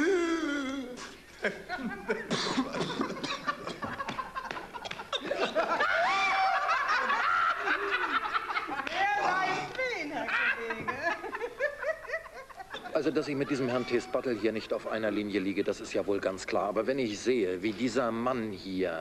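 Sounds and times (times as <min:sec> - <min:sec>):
people laughing: 0:00.7 - 0:15.4.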